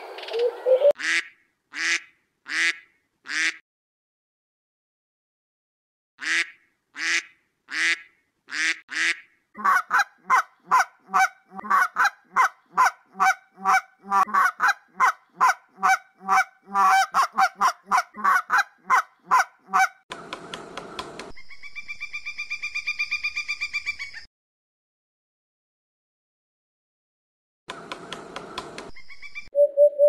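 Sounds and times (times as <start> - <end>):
duck quacking: 0.8 - 3.6, 6.2 - 20.0
goose honking: 6.2 - 19.9.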